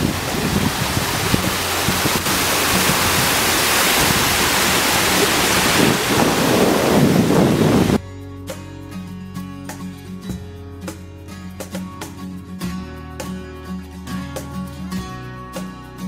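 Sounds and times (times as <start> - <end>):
water rushing over rock ledge: 0.0 - 8.0
wind buffeting microphone: 0.0 - 8.0.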